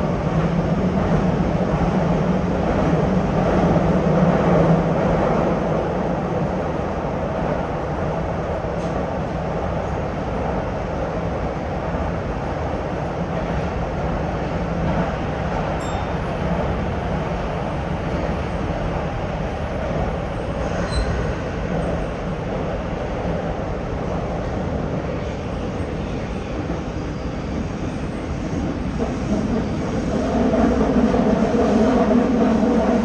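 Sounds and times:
train wheels rumbling on rail: 0.0 - 33.0
faint high squeals: 20.8 - 21.3.

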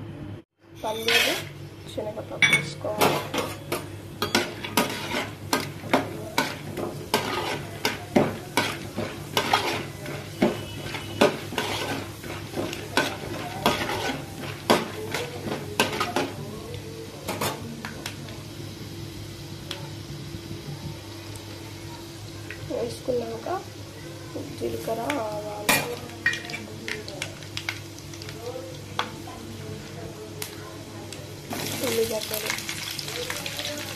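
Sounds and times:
metal spoon clinking and scraping: 0.8 - 1.5, 2.4 - 16.4
oil sizzling: 2.8 - 33.9.

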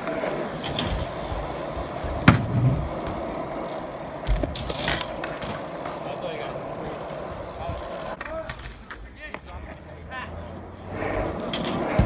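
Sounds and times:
bike tyres rolling on concrete: 0.0 - 12.0
dull thump: 2.2 - 2.9.

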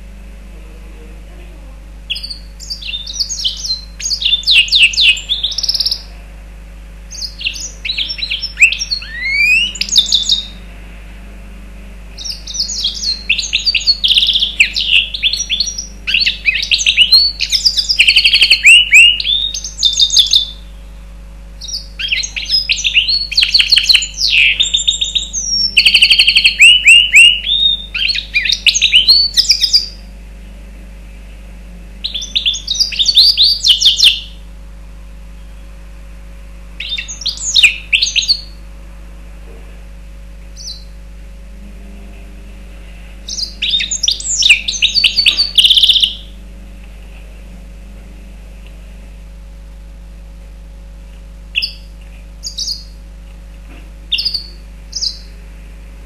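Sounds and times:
bird singing chirps and trills: 2.0 - 10.7, 12.1 - 30.1, 32.0 - 34.4, 36.8 - 38.6, 40.5 - 41.0, 43.2 - 46.4, 51.5 - 53.0, 54.1 - 55.4.

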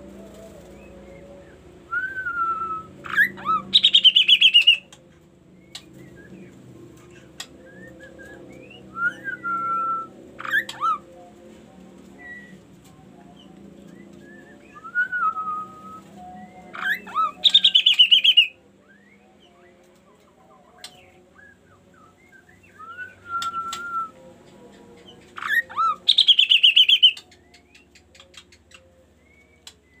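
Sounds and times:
bird whistled notes: 2.0 - 4.8, 16.7 - 18.5, 25.4 - 27.2
bird chattering trill: 3.1 - 4.8, 16.8 - 18.5, 25.4 - 27.2.

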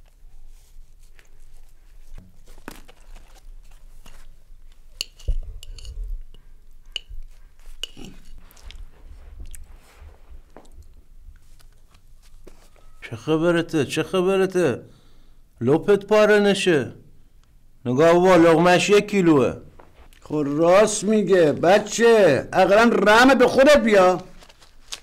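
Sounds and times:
person chewing food noisily: 1.2 - 12.1.

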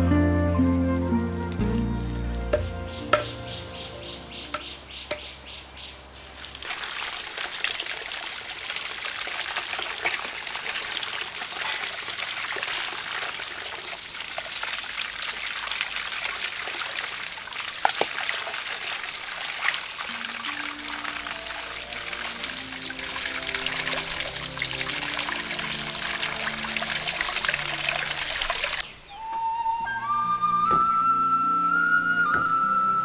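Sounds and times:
water splashing into bowl: 6.3 - 28.8
hands rinsing under water: 19.3 - 28.8.

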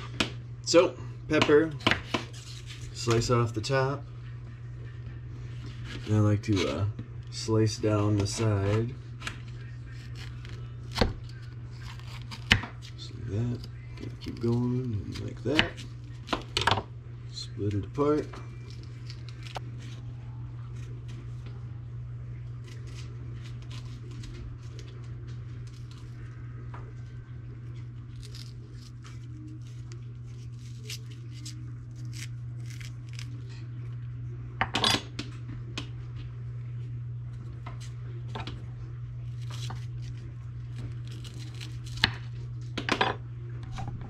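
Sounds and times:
low hum: 0.0 - 44.0.

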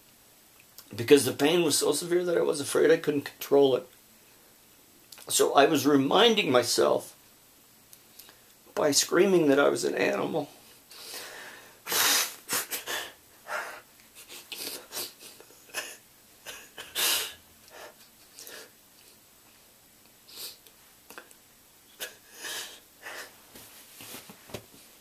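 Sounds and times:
man breathing heavily in pain: 11.0 - 11.8, 22.2 - 23.4.

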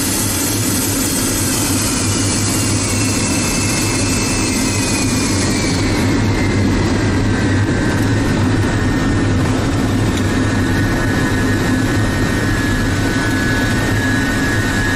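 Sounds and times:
jet engines rumbling and whining: 0.0 - 14.9.

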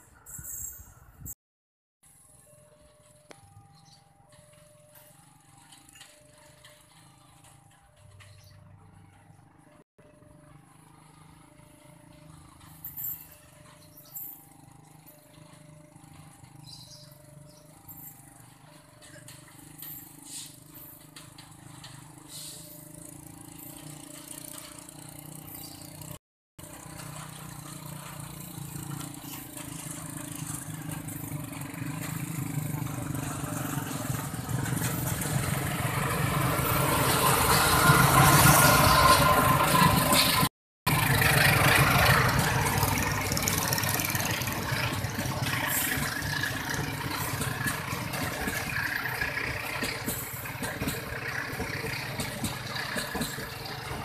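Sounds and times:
diesel locomotive engine: 2.1 - 54.0
train wheels rumbling on rails: 11.0 - 54.0.

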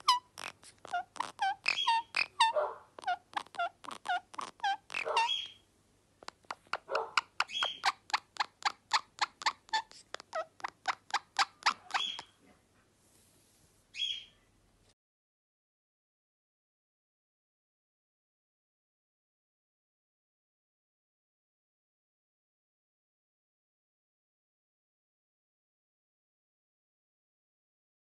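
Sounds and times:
parakeet squeaky chirps: 0.0 - 5.6, 6.2 - 12.4, 13.9 - 14.4.

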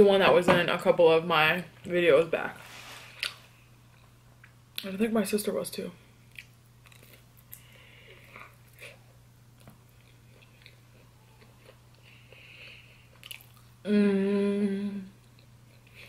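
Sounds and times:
person chewing food: 6.3 - 13.8
closed-mouth vocal hum: 13.8 - 15.2.

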